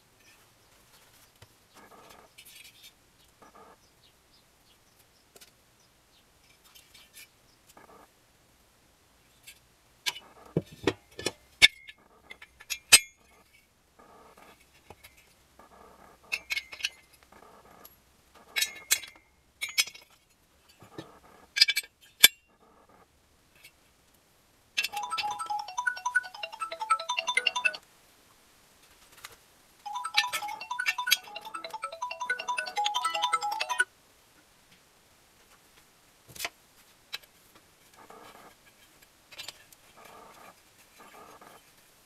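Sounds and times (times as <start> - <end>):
bell-like music: 24.9 - 27.8, 29.9 - 33.8.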